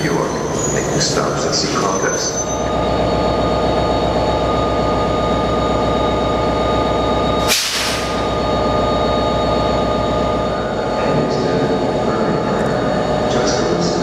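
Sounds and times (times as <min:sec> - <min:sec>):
diesel locomotive idling: 0:00.0 - 0:14.0
whining tones: 0:00.0 - 0:14.0
air hiss burst: 0:07.5 - 0:08.2.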